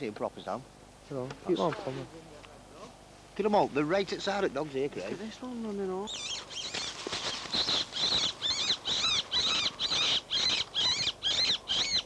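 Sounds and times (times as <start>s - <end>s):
animal squealing: 8.0s - 12.0s.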